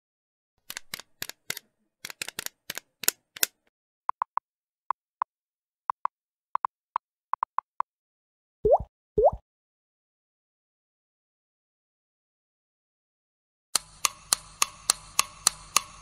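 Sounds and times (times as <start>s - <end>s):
run of sharp clicks: 0.6s - 4.4s, 13.8s - 16.0s.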